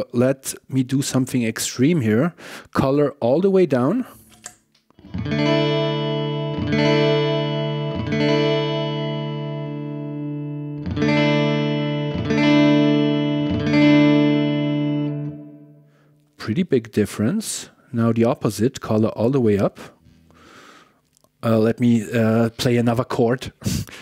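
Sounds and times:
electric guitar chord with reverb: 5.0 - 16.0.

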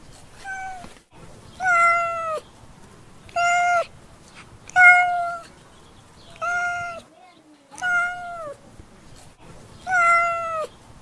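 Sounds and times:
cat meowing: 0.4 - 0.9, 1.6 - 2.4, 3.3 - 3.9, 4.7 - 5.5, 6.3 - 7.0, 7.8 - 8.6, 9.8 - 10.7.

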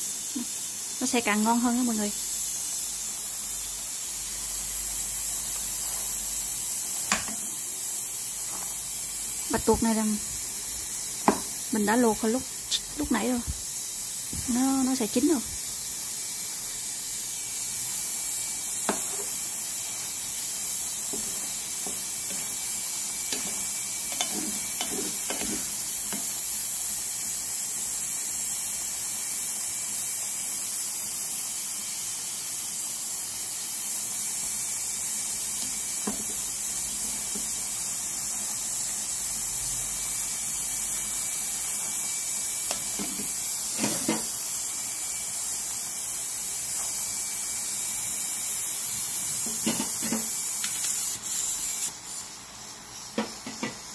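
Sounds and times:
steam hissing: 0.0 - 53.9.

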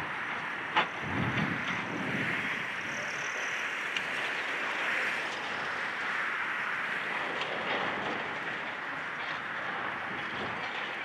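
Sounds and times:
excavator machine noise: 0.0 - 11.0
crunching rumble of breaking material: 7.1 - 11.0.

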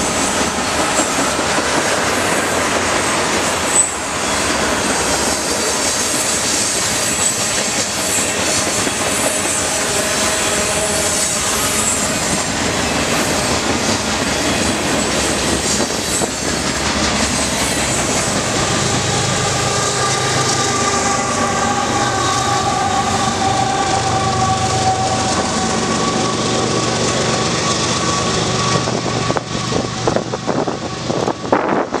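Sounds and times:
train wheels rumbling on rail: 0.0 - 32.0
high-pitched wheel squeal: 3.7 - 4.6, 5.3 - 16.6, 17.4 - 26.8.

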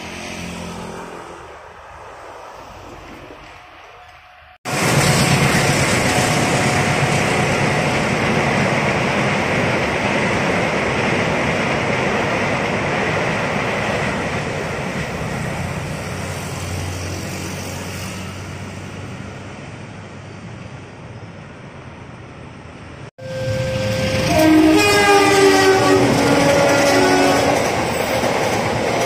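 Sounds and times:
motorcycles passing: 0.0 - 3.4
train wheels rumbling on rail: 1.6 - 20.8, 22.6 - 29.0.

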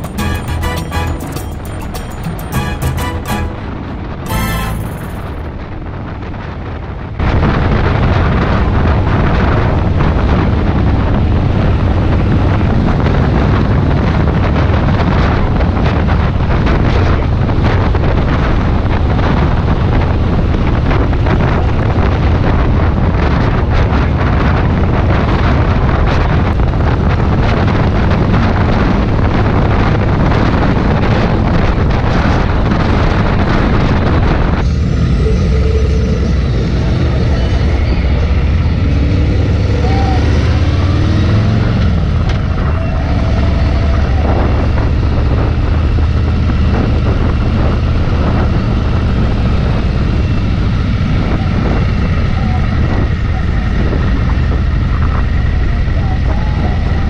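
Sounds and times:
motorcycle engine: 0.0 - 5.5
road noise: 0.0 - 57.0
wind noise on microphone: 0.0 - 57.0.

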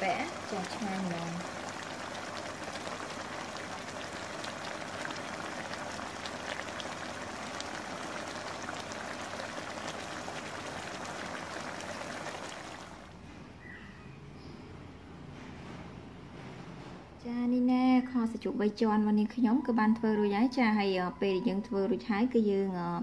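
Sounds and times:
sauce bubbling and sizzling: 0.0 - 13.1.

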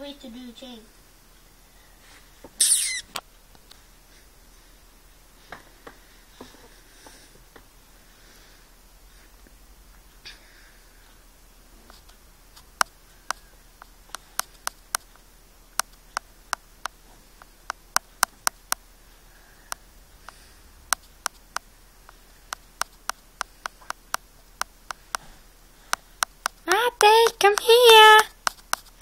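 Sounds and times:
short sharp clicks: 2.6 - 3.2.

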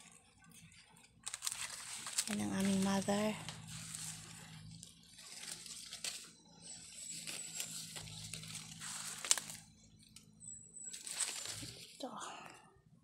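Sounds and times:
leaves and branch rustling: 1.2 - 9.8, 10.8 - 12.4.

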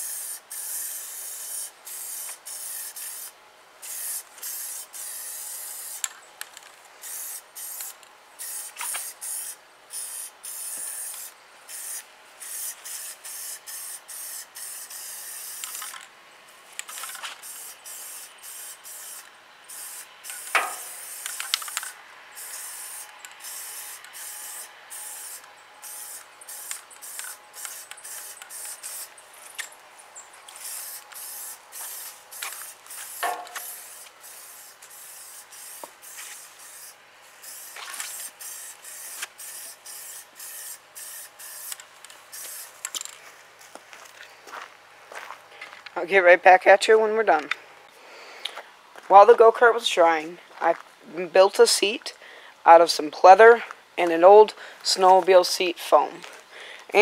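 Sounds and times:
spray can hissing: 0.0 - 6.1, 7.0 - 15.9, 16.8 - 29.2, 30.5 - 42.9.

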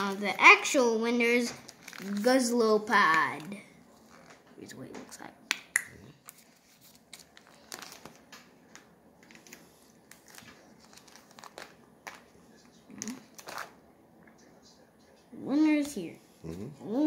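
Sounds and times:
plastic binder pages crinkling: 1.5 - 4.6, 6.2 - 13.8.

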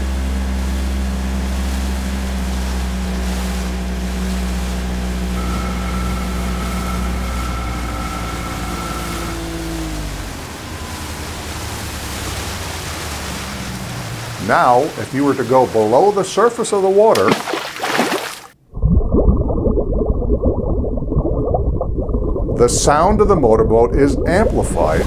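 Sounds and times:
motorboat engine droning: 0.0 - 17.1, 20.4 - 25.0
steady higher tone: 4.8 - 12.6.

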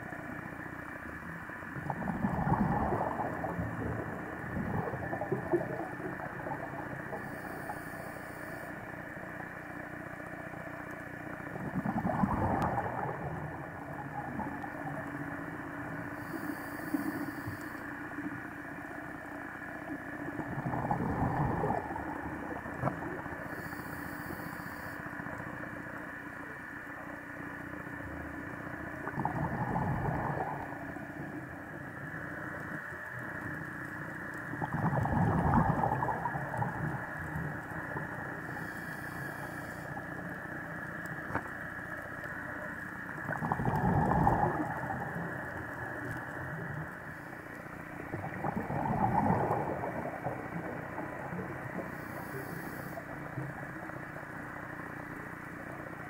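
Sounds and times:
steady hum: 0.0 - 56.0
exhaled bubbles underwater: 1.7 - 8.0, 11.3 - 17.3, 19.9 - 23.9, 28.2 - 31.8, 32.6 - 40.3, 43.0 - 56.0.

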